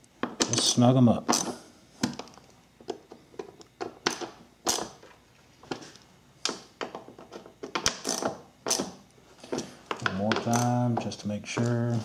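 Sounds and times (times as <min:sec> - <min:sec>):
hand ratchet clicking: 0:10.0 - 0:10.9.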